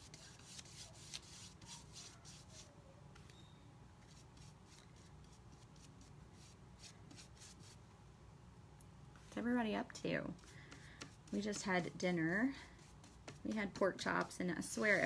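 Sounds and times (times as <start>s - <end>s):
paintbrush strokes on wood: 10.2s - 15.0s.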